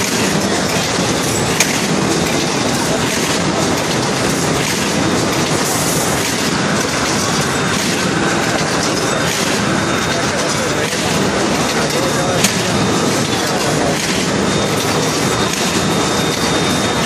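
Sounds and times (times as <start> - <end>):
machinery clattering: 0.0 - 17.0.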